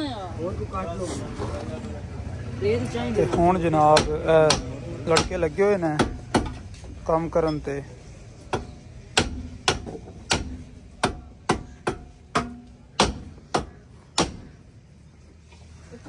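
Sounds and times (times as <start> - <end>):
hammer striking metal: 8.5 - 14.6.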